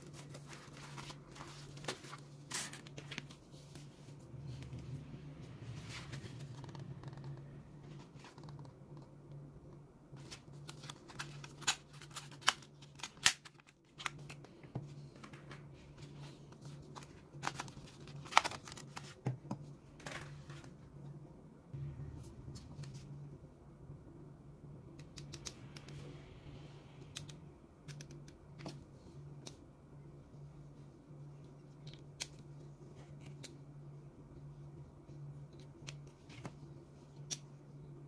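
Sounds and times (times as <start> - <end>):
low steady hum: 0.0 - 38.0.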